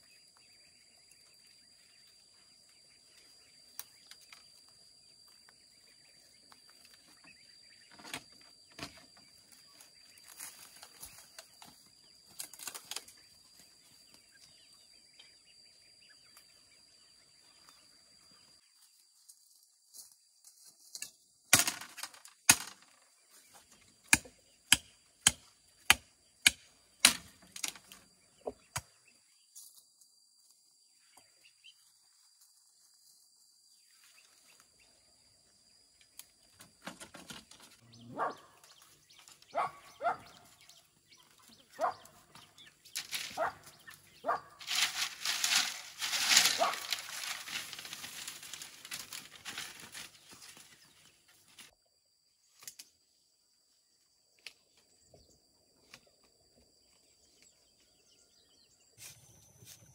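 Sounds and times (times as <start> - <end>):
bamboo cracking: 10.3 - 13.3, 20.8 - 23.0, 24.0 - 28.0, 43.0 - 43.5, 44.6 - 50.7, 52.5 - 52.9.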